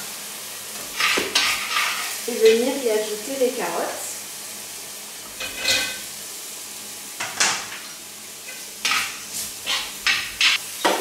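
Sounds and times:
food sizzling in hot oil: 0.0s - 11.0s
utensil scraping pan: 0.9s - 2.6s, 8.5s - 10.6s.

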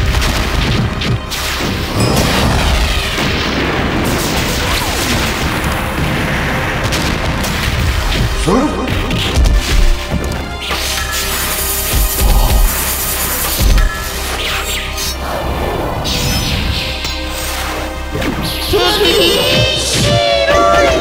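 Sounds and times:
explosion-like booms: 0.0s - 10.0s
background music: 0.0s - 21.0s.

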